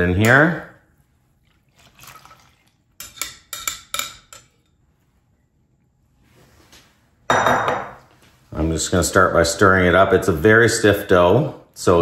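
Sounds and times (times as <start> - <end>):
glass bowl knocking on glass: 7.3 - 8.0.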